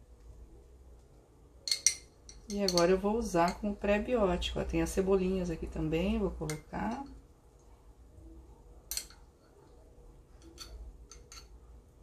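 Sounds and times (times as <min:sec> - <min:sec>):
metal fork clicking: 0:01.7 - 0:03.6, 0:08.9 - 0:09.2, 0:10.4 - 0:11.6.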